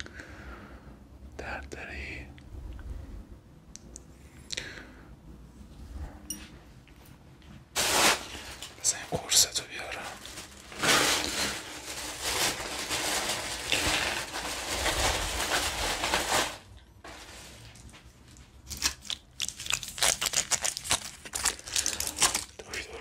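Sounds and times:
sharp crinkles and clicks: 17.7s - 23.0s.

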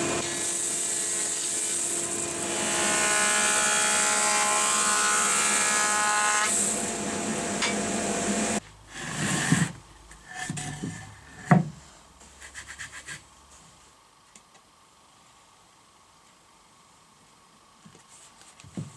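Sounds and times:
hands rubbing wooden boards: 12.3s - 13.2s.

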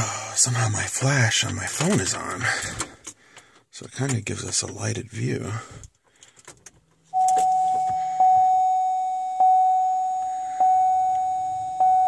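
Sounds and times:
ignition key clicks: 6.2s - 8.0s
car warning chime: 7.1s - 12.0s.

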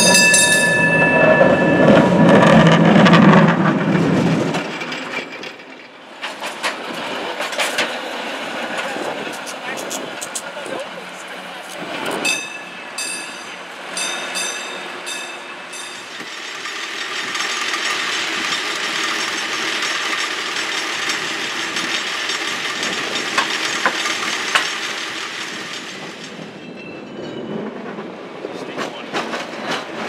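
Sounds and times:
short metallic rings: 0.0s - 2.3s, 12.3s - 16.2s
cable car rattling rumble: 0.0s - 30.0s.

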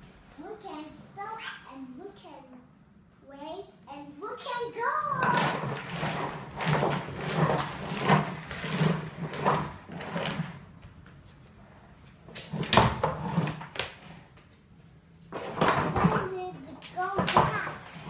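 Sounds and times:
suitcase wheels rolling on wooden floor: 5.0s - 11.2s, 12.0s - 14.3s, 15.2s - 18.0s.

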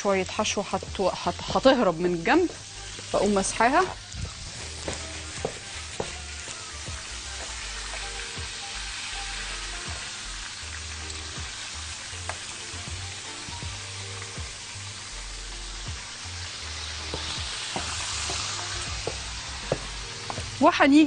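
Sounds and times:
oil popping and crackling: 0.0s - 20.7s
hot oil sizzling: 0.0s - 21.0s.

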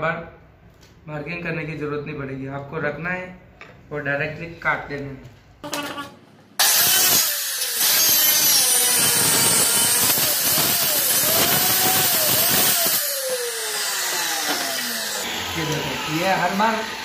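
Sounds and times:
circular saw cutting wood: 6.6s - 17.0s.

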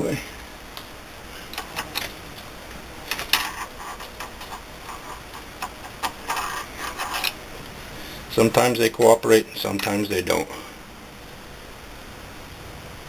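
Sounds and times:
screwdriver clicking and scraping: 3.1s - 7.4s.

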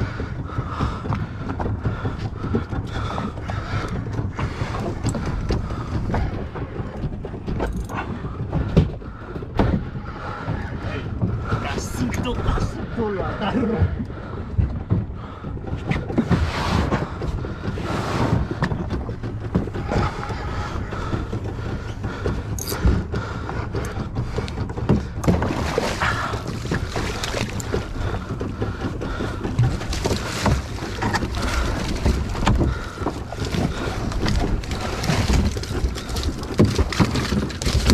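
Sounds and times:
water lapping against boat: 0.0s - 37.9s
fish thrashing and splashing: 18.4s - 37.9s.

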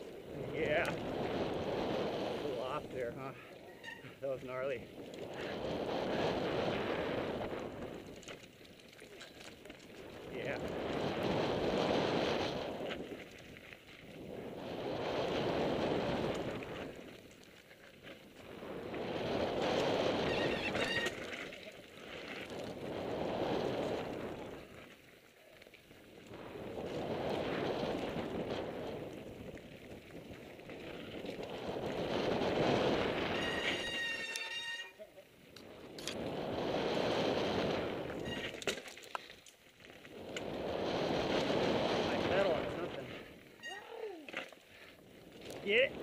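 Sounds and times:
wind rushing over microphone: 0.0s - 8.3s, 10.0s - 17.2s, 18.3s - 21.4s, 22.3s - 24.8s, 26.1s - 34.2s, 35.6s - 38.6s, 40.0s - 43.5s, 45.0s - 46.0s
tyres rolling on dirt trail: 0.0s - 46.0s
high-pitched brake squeal: 3.7s - 4.2s, 20.2s - 21.2s, 33.3s - 35.0s, 38.2s - 38.6s, 43.6s - 43.9s.

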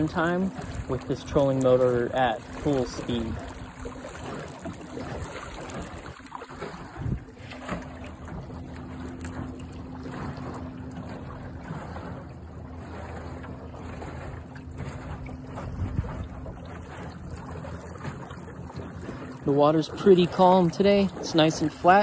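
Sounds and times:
water rushing past hull: 0.0s - 22.0s
wind on microphone: 2.5s - 8.4s, 14.8s - 18.2s.

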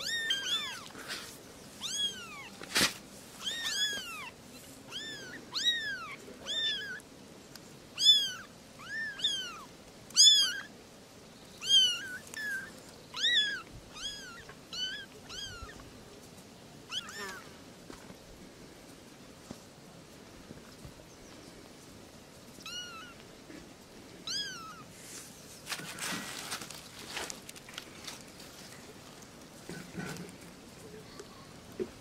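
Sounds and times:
kittens meowing: 0.0s - 1.0s, 1.8s - 2.6s, 3.4s - 7.0s, 8.0s - 10.7s, 11.6s - 15.9s, 16.9s - 17.5s, 22.6s - 23.2s, 24.2s - 24.9s.

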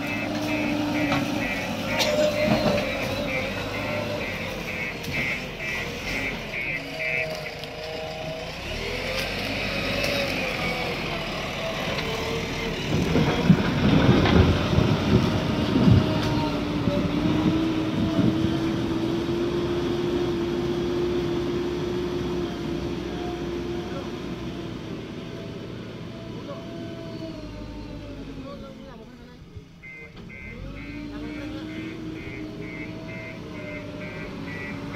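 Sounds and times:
rapid beeping alarm: 0.0s - 7.7s, 29.8s - 34.9s
diesel engine running: 0.0s - 34.9s.

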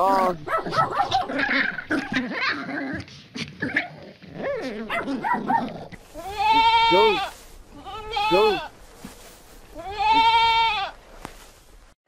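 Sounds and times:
dog barking and yipping: 0.0s - 2.7s, 3.6s - 5.9s
goat bleating: 6.0s - 8.8s, 9.7s - 11.0s.

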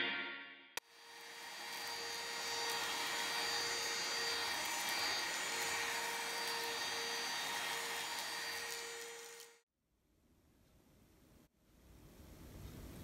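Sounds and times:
stick vacuum running: 0.8s - 9.6s.

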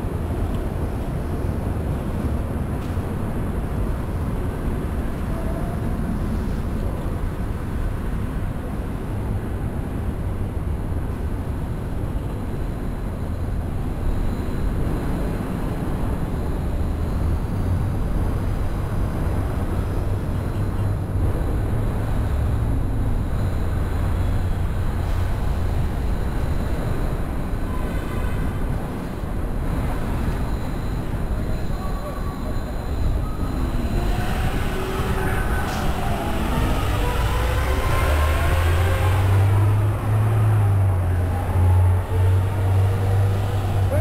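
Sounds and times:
traffic rumble: 0.0s - 44.0s
wind: 0.0s - 44.0s.

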